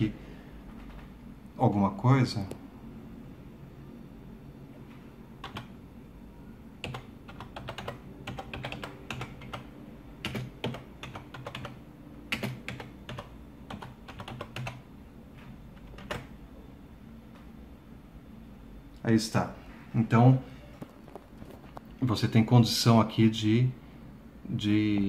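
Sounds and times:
keyboard typing: 5.4 - 5.8, 6.8 - 14.9, 15.7 - 16.4.

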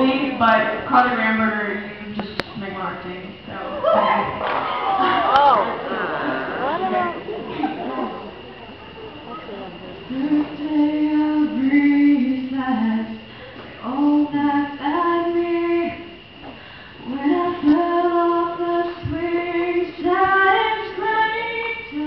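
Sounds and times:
girl singing into a microphone: 10.1 - 22.0.

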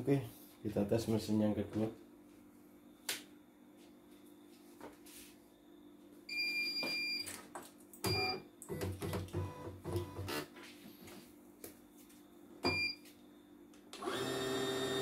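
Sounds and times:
faint machine hum: 0.0 - 15.0.

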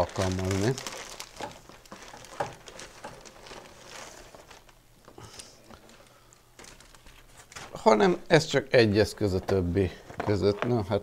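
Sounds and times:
plastic bag rustling: 0.0 - 8.0.

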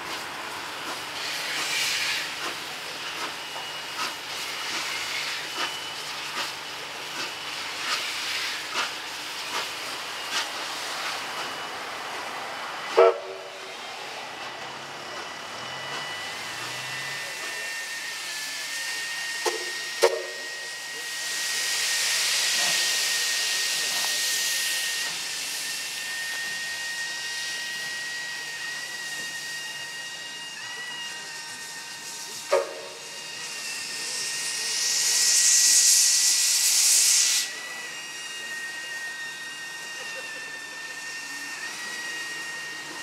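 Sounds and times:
loud rush of steam: 0.0 - 43.0
steam hissing: 0.0 - 43.0.

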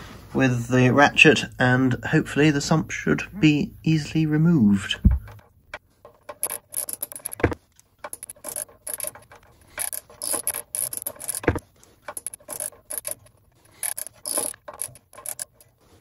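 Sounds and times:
dull knocks: 5.0 - 5.4
socket ratchet clicking: 6.3 - 15.7.

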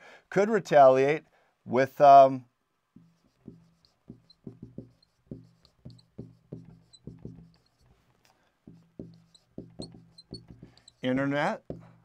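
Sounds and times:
marker writing on whiteboard: 3.0 - 12.0.

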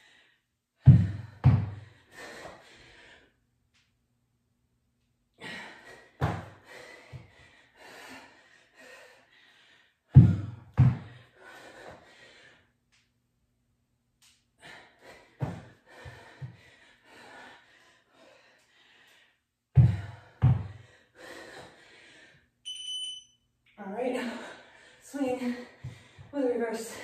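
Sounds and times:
woman breathing hard: 0.0 - 3.4, 5.4 - 12.8, 14.6 - 22.6, 24.2 - 26.3
timer beep: 22.7 - 23.4.

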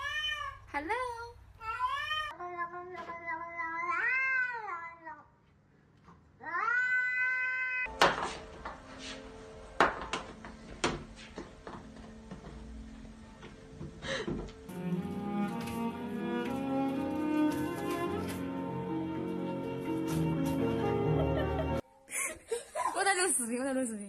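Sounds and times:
cat meowing: 6.4 - 7.9.

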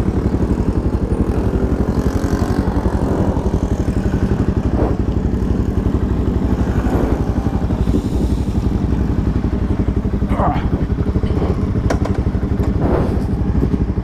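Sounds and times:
motorcycle engine idling: 0.0 - 14.0.

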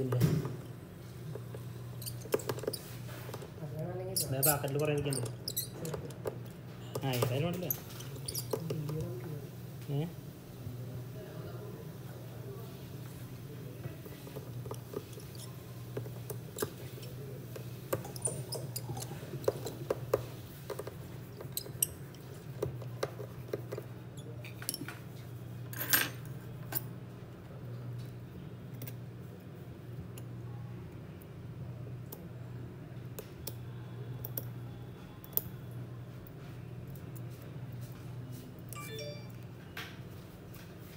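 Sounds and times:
hand tools clicking and tapping: 14.3 - 23.9.

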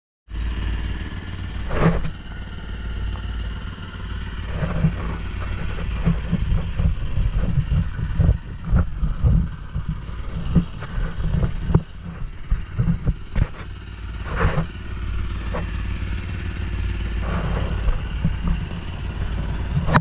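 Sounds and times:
boat engine humming: 0.3 - 20.0
thumps and bumps: 3.2 - 15.8, 17.2 - 20.0.

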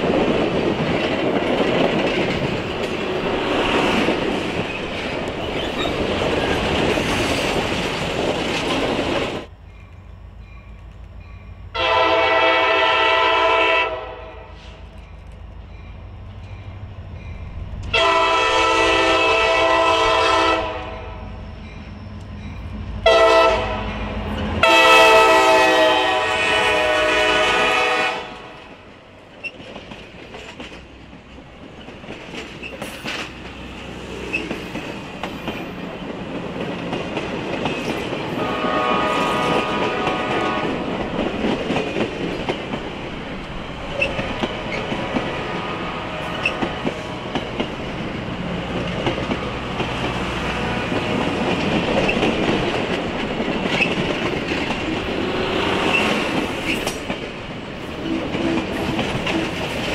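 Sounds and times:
wheels clicking over rail joints: 0.0 - 11.3, 29.2 - 38.4, 39.5 - 45.4, 46.3 - 59.9
train rumble and rail noise: 0.0 - 59.9
steam whistle blast: 11.8 - 14.8, 18.0 - 21.1, 23.0 - 23.8, 24.6 - 28.4, 38.4 - 40.6.

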